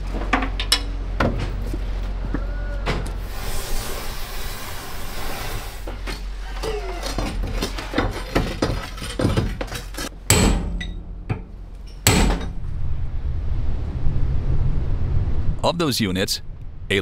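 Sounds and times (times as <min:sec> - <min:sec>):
metal clanking: 0:06.2 - 0:12.8
loud ringing metal strikes: 0:10.2 - 0:12.7.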